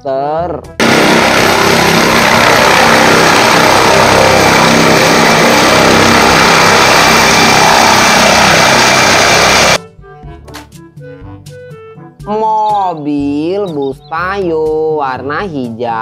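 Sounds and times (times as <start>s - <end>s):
helicopter rotor and engines: 0.8s - 9.8s
high turbine whine: 0.8s - 9.8s.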